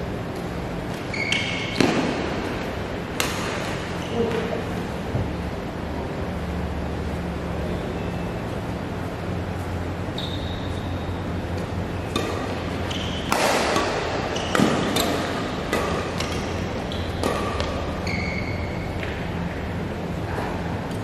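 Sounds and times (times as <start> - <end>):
shoes squeaking on court floor: 0.2 - 2.3, 3.4 - 4.7, 7.7 - 19.6
racket hitting shuttlecock: 0.4 - 4.5, 10.4 - 19.7.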